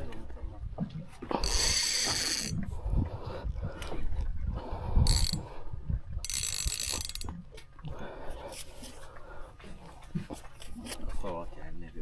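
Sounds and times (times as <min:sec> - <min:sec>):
rod handling knocks and rumble: 0:00.8 - 0:02.7, 0:06.2 - 0:07.8
fishing reel drag buzzing: 0:01.4 - 0:02.6, 0:05.0 - 0:05.4, 0:06.2 - 0:07.3.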